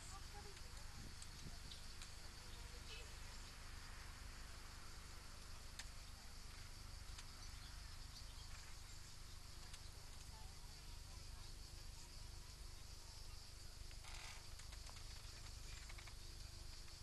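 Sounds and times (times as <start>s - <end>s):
insects buzzing: 0.0s - 17.0s
faint clicks: 0.1s - 2.2s, 5.4s - 6.1s, 7.0s - 7.4s, 9.6s - 10.4s, 13.9s - 16.2s.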